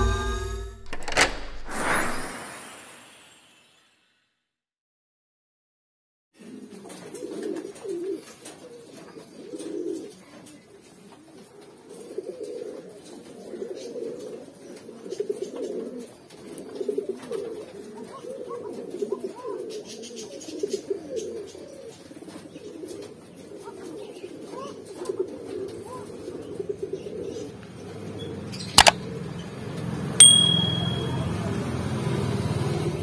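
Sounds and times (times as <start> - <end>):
sharp click: 0.8 - 2.3, 28.8 - 29.0, 30.2 - 31.2
pigeons cooing: 6.4 - 29.4.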